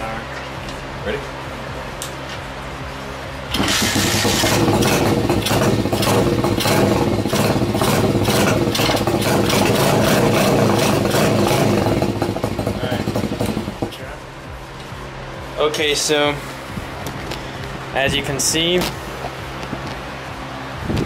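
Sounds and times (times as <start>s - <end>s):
motorbike engine running: 3.5s - 14.2s.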